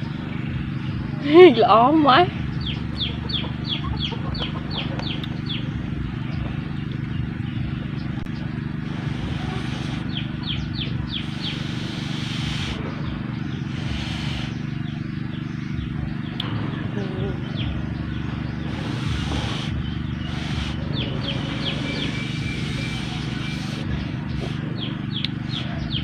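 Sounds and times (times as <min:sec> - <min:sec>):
bird chirping: 0:00.0 - 0:26.0
low hum: 0:00.0 - 0:26.0.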